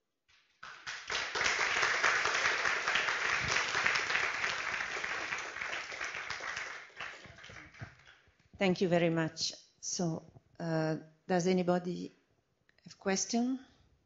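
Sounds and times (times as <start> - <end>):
audience clapping: 0.3 - 8.2.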